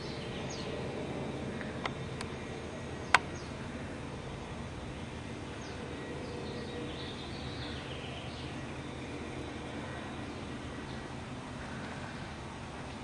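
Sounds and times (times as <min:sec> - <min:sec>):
outdoor background noise: 0:00.0 - 0:13.0
bird chirps: 0:04.8 - 0:12.4.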